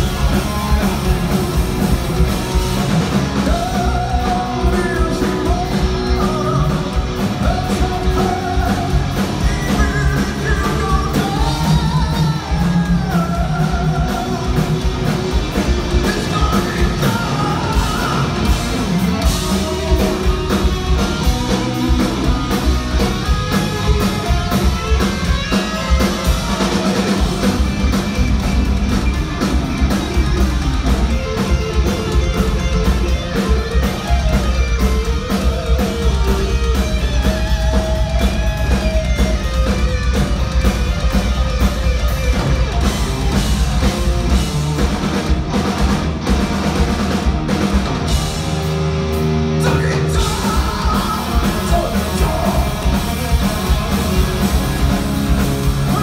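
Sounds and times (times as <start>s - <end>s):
bass guitar: 0.0s - 56.0s
drum kit: 0.0s - 56.0s
electric guitars: 0.0s - 56.0s
person singing: 3.4s - 14.8s, 15.9s - 18.6s, 49.6s - 54.0s.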